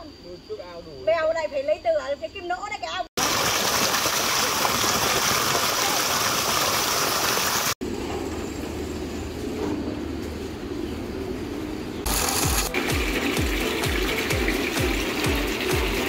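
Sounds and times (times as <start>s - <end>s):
water gushing from pipe: 3.2s - 7.8s, 12.1s - 16.0s.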